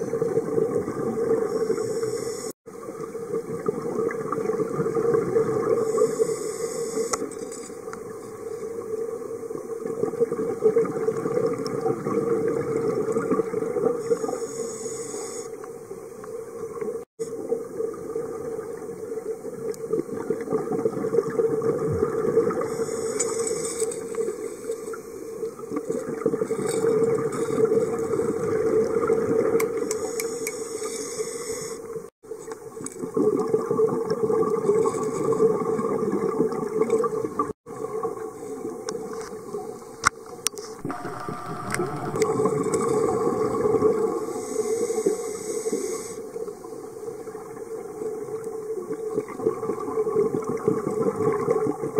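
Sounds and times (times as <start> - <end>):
bubbling exhaled air underwater: 0.0 - 7.1, 8.8 - 14.4, 16.7 - 30.2, 33.0 - 39.8, 40.8 - 51.9
regulator inhale hiss: 1.5 - 2.6, 5.8 - 7.6, 14.0 - 15.6, 22.6 - 25.0, 29.9 - 32.0, 40.8 - 47.0.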